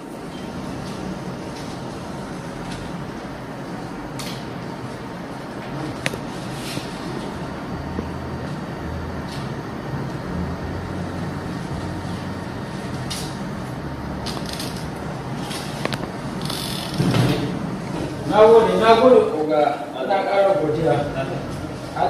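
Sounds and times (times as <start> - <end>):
room noise hum and hiss: 0.0 - 22.0.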